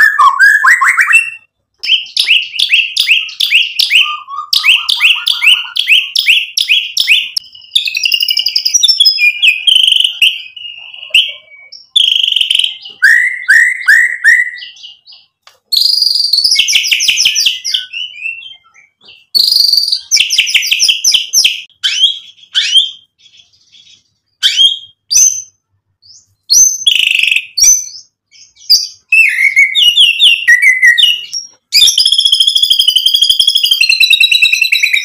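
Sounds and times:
clear whistled phrases: 0.0s - 14.8s, 26.5s - 35.0s
songbird singing varied song: 0.0s - 35.0s.

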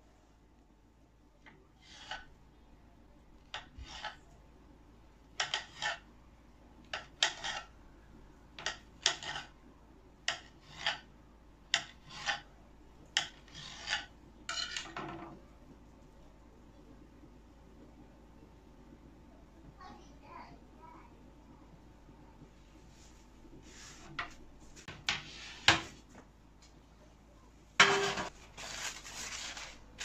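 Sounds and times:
knife slicing dough onto board: 8.6s - 9.5s.

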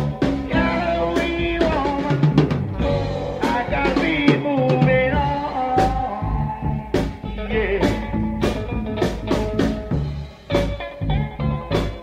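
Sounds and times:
drum kit beat: 0.0s - 12.0s
rock band music: 0.0s - 12.0s.

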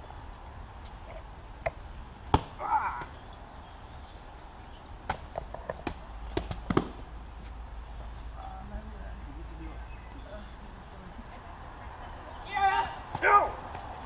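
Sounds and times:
person shouting: 12.5s - 13.6s.

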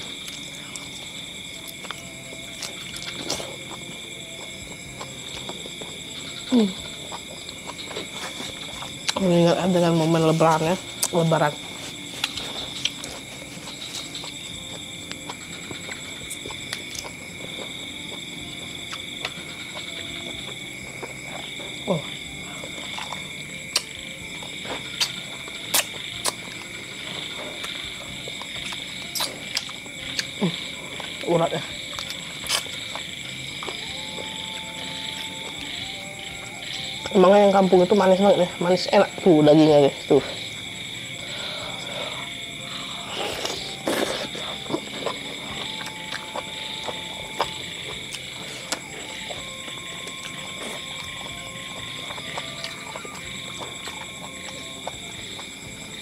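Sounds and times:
night insects trilling: 0.0s - 56.0s
chewing and lip smacks: 11.9s - 31.2s, 31.8s - 33.9s, 43.2s - 56.0s
person sucking on a bone: 24.8s - 26.4s, 28.4s - 31.2s, 31.9s - 33.8s, 41.7s - 46.5s.

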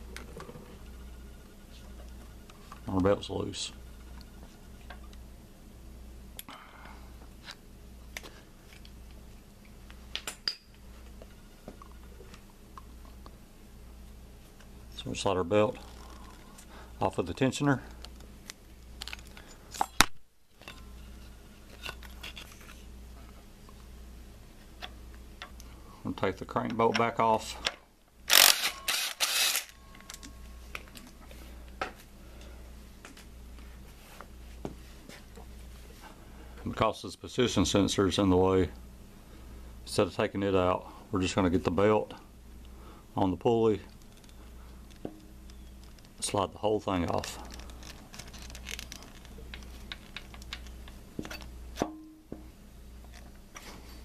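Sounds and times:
low steady hum: 0.0s - 54.0s
impact wrench: 28.3s - 29.8s.

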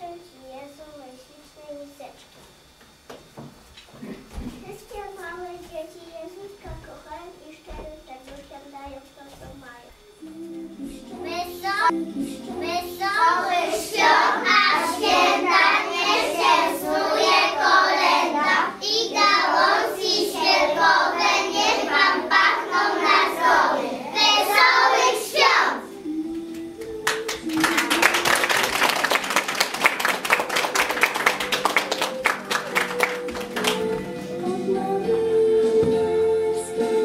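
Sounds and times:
children singing together: 10.4s - 29.6s, 30.3s - 37.0s
applause: 26.8s - 34.1s.

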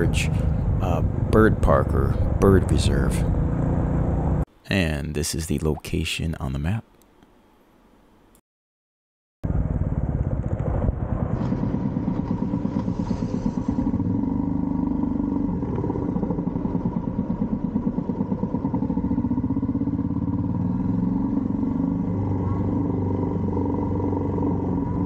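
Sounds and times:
motorcycle engine running: 9.4s - 25.0s.

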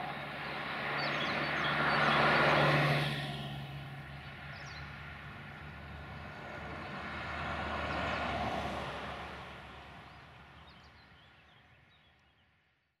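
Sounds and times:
vehicle passing by: 0.0s - 11.3s.

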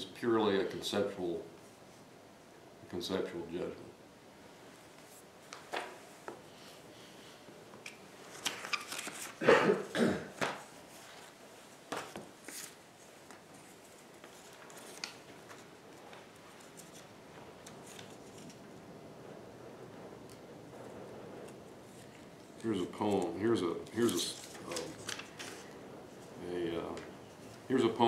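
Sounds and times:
paper rustling: 7.8s - 9.5s, 10.4s - 18.7s, 21.4s - 28.0s.

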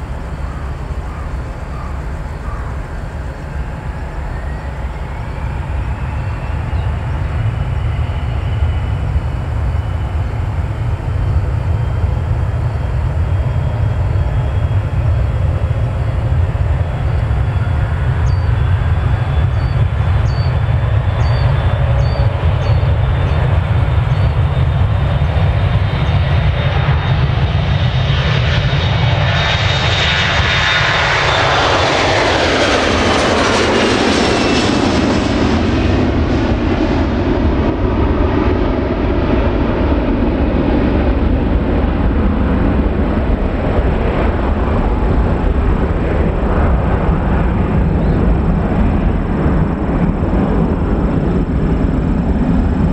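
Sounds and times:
jet engines roaring at takeoff: 0.0s - 52.9s.

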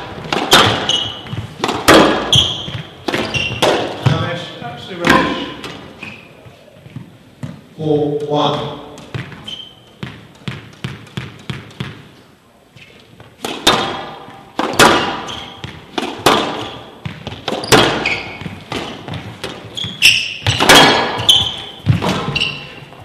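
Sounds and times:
racket striking ball: 0.0s - 4.3s, 5.0s - 5.9s, 8.9s - 12.1s, 13.3s - 23.0s
squash ball bouncing on floor: 0.0s - 5.9s, 8.9s - 12.1s, 13.2s - 23.0s
ball smacking court walls: 0.0s - 6.2s, 6.9s - 12.1s, 13.0s - 23.0s
shoes squeaking on floor: 0.0s - 7.7s, 8.5s - 11.9s, 12.7s - 23.0s.

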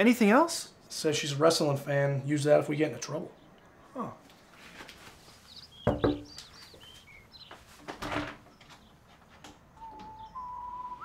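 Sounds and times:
soft knock: 5.8s - 6.3s
door thudding: 5.8s - 6.4s
faint high chirps: 9.8s - 11.0s
whistled tone: 9.8s - 11.0s.

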